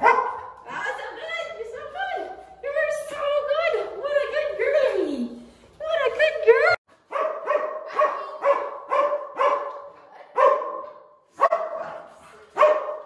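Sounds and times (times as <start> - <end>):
dog barking: 0.0 - 0.6, 7.1 - 13.0.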